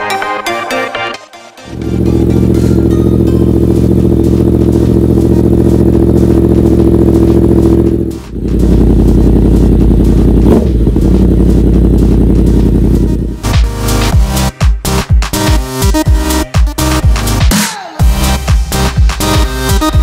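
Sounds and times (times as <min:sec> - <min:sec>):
motorcycle engine idling: 0:01.7 - 0:13.7.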